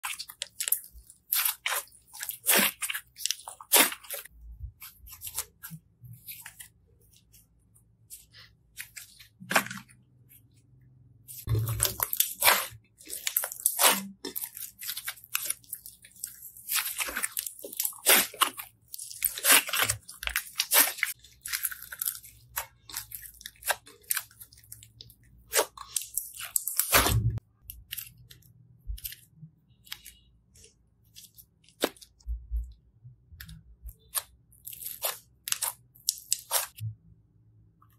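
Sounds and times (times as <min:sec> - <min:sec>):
heavy slime squishes: 0:00.0 - 0:10.4, 0:11.2 - 0:28.1.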